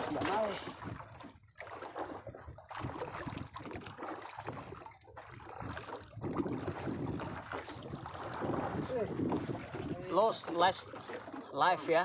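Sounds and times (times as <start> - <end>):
water lapping against boat hull: 0.0 - 12.0
wind buffeting microphone: 2.2 - 11.3.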